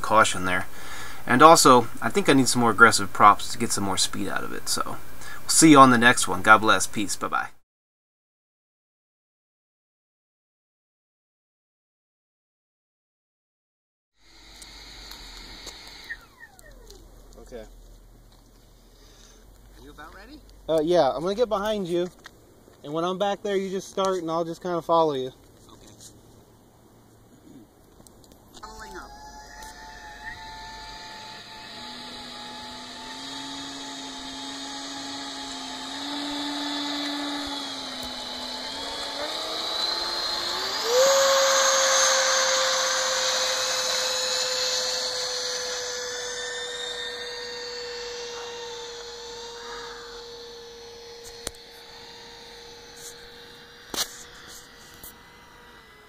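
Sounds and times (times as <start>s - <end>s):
model plane motor whine: 0.0s - 7.2s, 14.2s - 22.3s, 28.2s - 56.0s
quadcopter motors: 0.0s - 7.4s, 14.2s - 26.4s, 27.1s - 56.0s.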